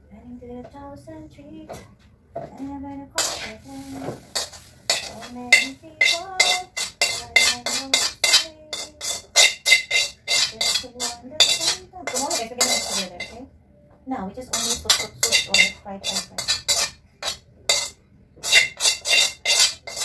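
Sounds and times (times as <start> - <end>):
cloth rubbing ringing metal basin: 3.2 - 13.4, 14.5 - 20.0.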